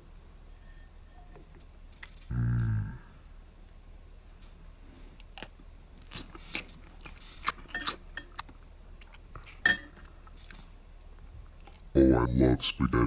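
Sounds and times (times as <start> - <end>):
mouth sounds of eating: 2.0 - 3.3, 6.0 - 9.6.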